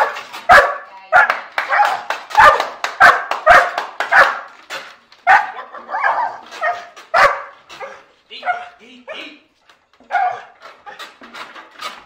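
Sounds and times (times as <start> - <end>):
large dog barking: 0.0 - 4.5, 5.2 - 8.8, 10.0 - 10.6.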